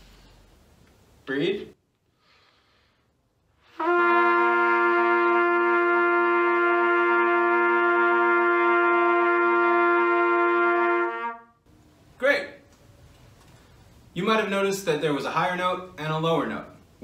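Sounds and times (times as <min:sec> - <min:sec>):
two trumpets holding tones: 0:03.6 - 0:11.6.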